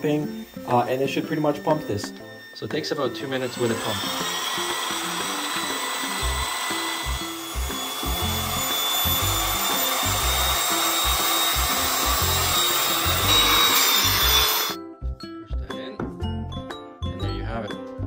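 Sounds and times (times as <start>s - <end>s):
electric air pump whirring: 0.0s - 14.8s
background music with bass: 6.2s - 18.0s.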